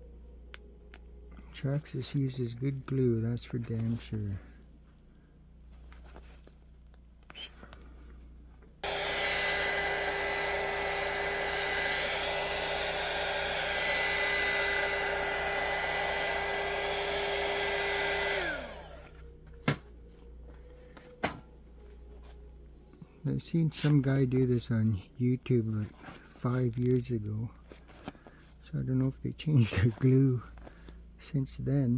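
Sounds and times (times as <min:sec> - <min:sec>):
heat gun fan whine: 0:07.3 - 0:08.0, 0:08.8 - 0:21.6, 0:23.2 - 0:24.8.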